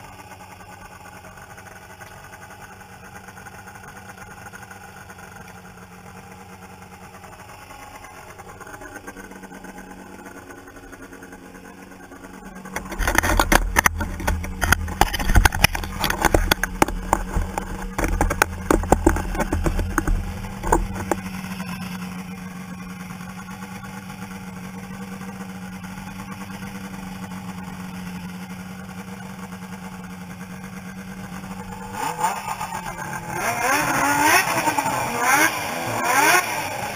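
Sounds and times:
snowmobile engine idling: 0.0 - 36.9
snowmobile engine revving: 0.0 - 36.9.

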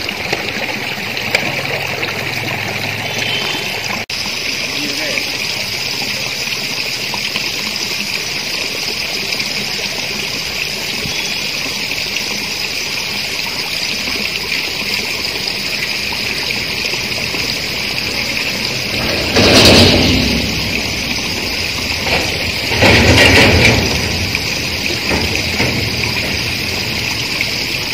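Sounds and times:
high-pitched outdoor hiss: 10.8 - 27.9.

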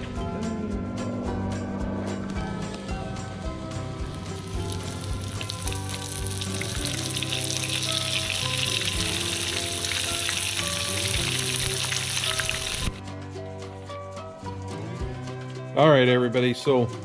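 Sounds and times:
fish sizzling in hot oil: 4.1 - 13.0.

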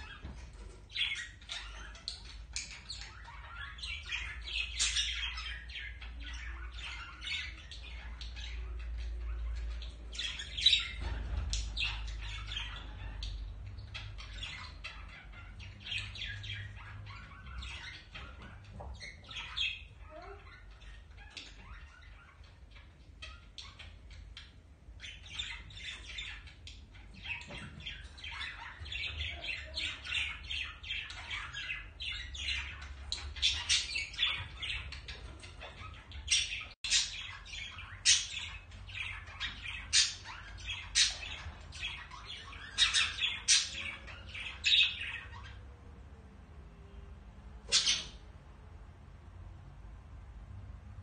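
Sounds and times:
budgerigars chattering: 0.0 - 45.6, 47.7 - 48.2
sharp bird calls: 47.6 - 48.3.

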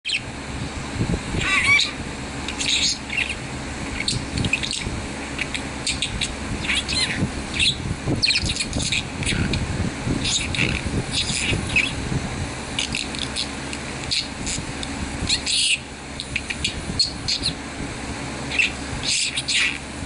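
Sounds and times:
budgerigar chirping and warbling: 0.1 - 0.3, 1.4 - 9.6, 10.2 - 12.0, 12.8 - 14.7, 15.3 - 17.6, 18.5 - 19.9.

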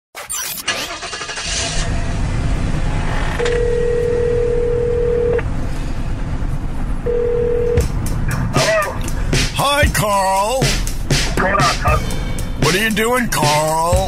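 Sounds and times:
car cabin rumble: 1.8 - 14.0
telephone ringing tone: 3.4 - 5.4, 7.1 - 7.8.

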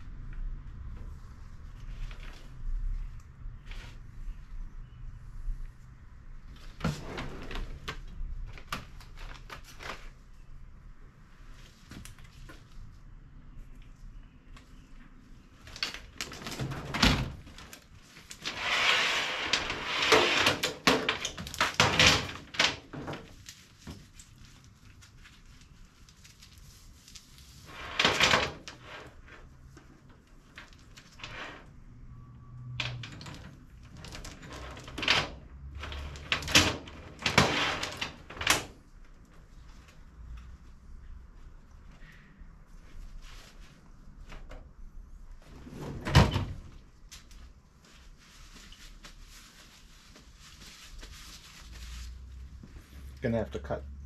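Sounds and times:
metal drawer sliding shut: 6.8 - 7.9, 18.5 - 21.2, 34.1 - 38.7, 45.5 - 46.7.

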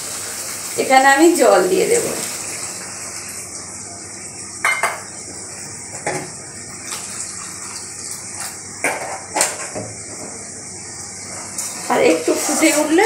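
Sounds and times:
metal spatula scraping a pan: 11.6 - 13.0.

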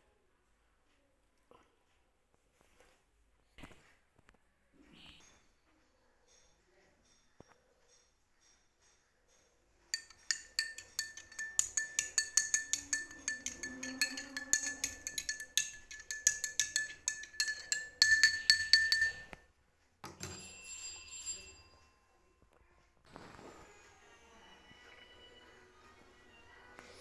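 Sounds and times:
spoon clinking in glass: 9.9 - 19.4, 20.0 - 21.7
soft ringing: 9.9 - 22.3.

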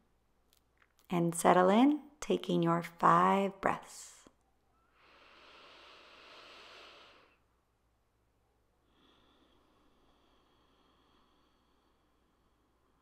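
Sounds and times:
soft breath through nose: 4.8 - 7.5, 8.8 - 13.0.

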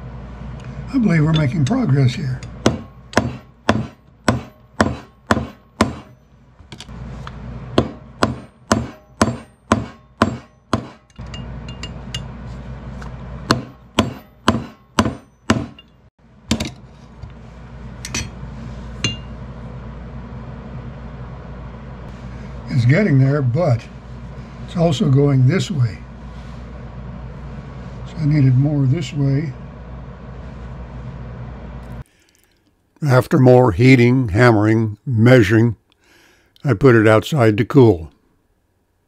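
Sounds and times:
steady low hum: 0.0 - 39.0
hammer striking metal: 2.4 - 6.9, 7.7 - 12.4, 13.4 - 16.8, 19.0 - 19.4.

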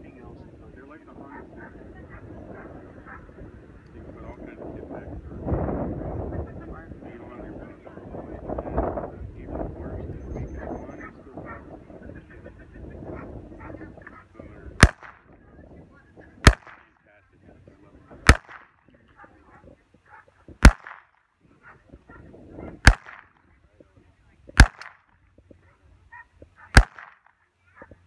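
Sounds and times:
pistol shots with echo: 14.8 - 15.4, 16.4 - 17.0, 18.2 - 18.9, 20.6 - 21.1, 22.8 - 23.5, 24.6 - 25.1, 26.7 - 27.4.

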